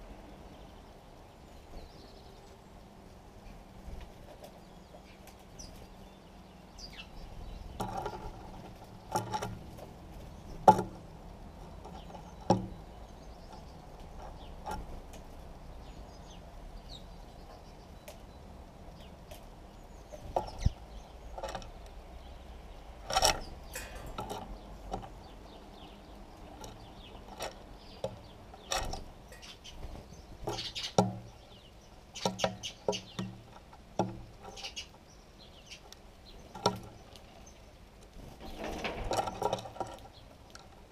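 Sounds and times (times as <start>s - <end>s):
sparrow chirps: 4.5s - 10.6s, 11.8s - 37.8s
sharp taps and knocks: 32.2s - 34.6s.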